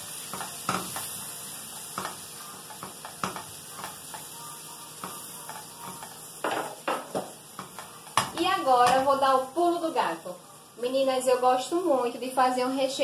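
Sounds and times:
food sizzling in oil: 0.0 - 13.0
spatula knocking against pan: 0.3 - 1.2, 1.9 - 4.3, 5.0 - 9.1.

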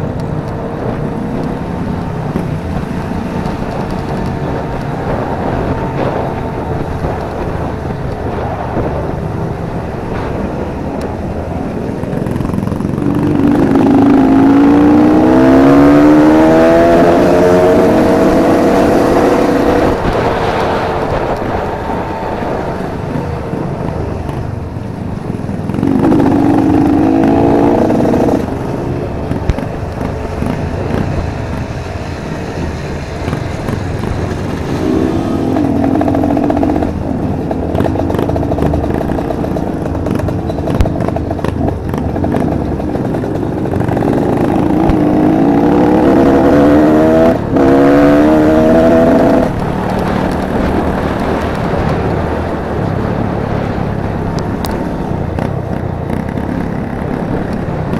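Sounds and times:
motorcycle engine accelerating: 0.0 - 57.9.

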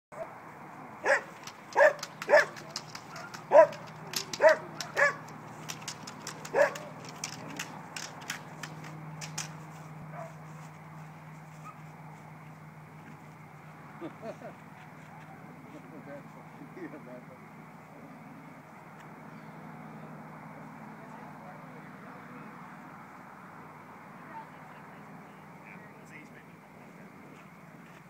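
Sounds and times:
dog barking: 1.0 - 5.3, 6.5 - 6.9, 10.1 - 10.4
sharp clicks and rattles: 1.0 - 9.9.

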